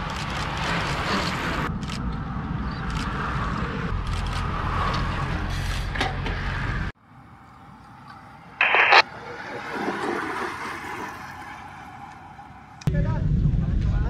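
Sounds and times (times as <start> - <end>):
bicycles riding past on asphalt: 9.1 - 12.8
wind rumble on microphone: 12.9 - 14.0.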